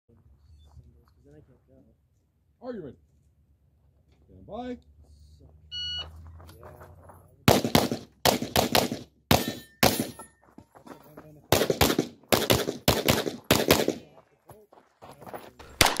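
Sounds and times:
pistol shots: 7.5 - 10.2, 11.5 - 14.1, 15.8 - 16.0.

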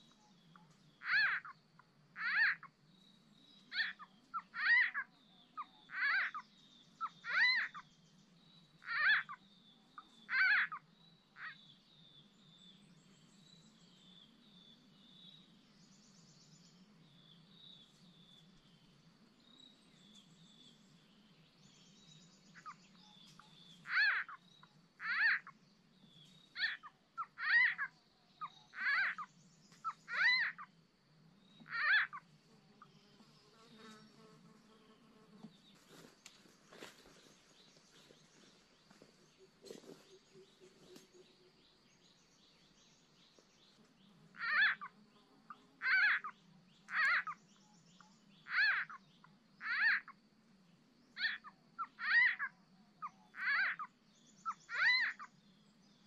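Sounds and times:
frogs croaking: 0.0 - 7.9, 8.5 - 11.8, 22.2 - 33.0, 35.9 - 50.4, 51.1 - 55.6.

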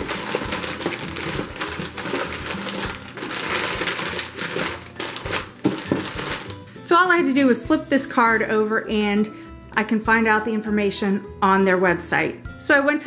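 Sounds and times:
packets knocking together: 0.0 - 6.7
plastic wrappers crinkling: 0.0 - 6.7.

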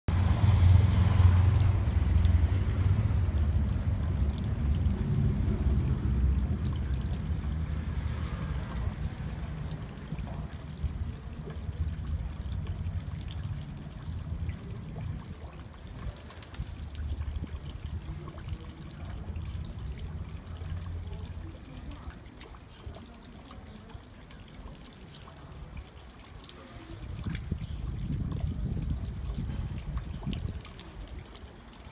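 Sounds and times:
low rumble: 0.1 - 11.0
fountain water splashing: 0.1 - 31.9.

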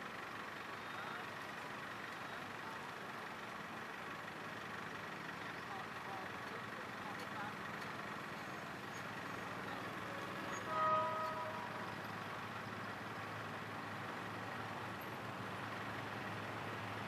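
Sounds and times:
motorbike engines idling: 0.0 - 17.0
vehicle horn toot: 10.1 - 11.9.

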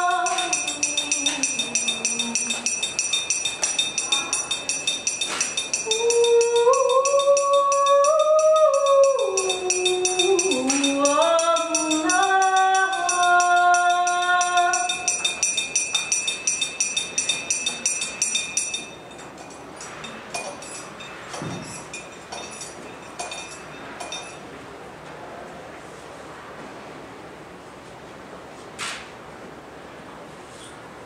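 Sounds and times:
wordless singing in long notes: 0.0 - 3.1, 5.8 - 15.6.

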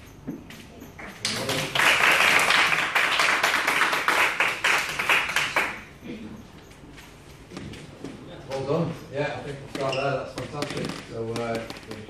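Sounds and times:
people clapping: 0.9 - 6.1.

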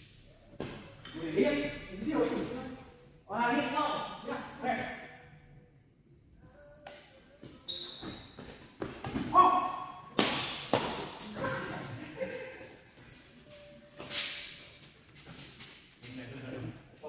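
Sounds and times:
shoe squeaks on court floor: 4.7 - 5.3, 7.5 - 9.3, 11.3 - 11.9, 12.9 - 14.7.

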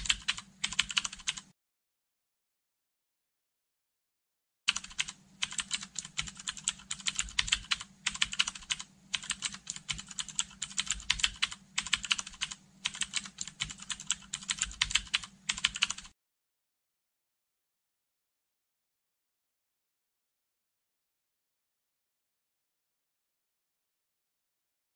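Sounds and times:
rapid keyboard typing clicks: 0.0 - 1.5, 4.7 - 16.2.

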